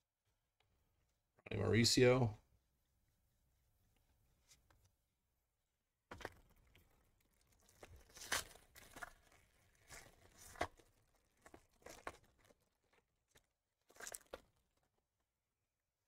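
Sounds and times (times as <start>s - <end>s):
foil wrapper tearing and crinkling: 6.2s - 14.9s.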